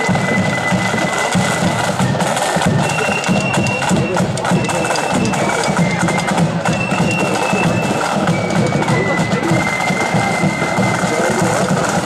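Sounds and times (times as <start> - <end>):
flutes playing a melody: 0.0 - 12.0
rapid side drum strokes: 0.0 - 12.0.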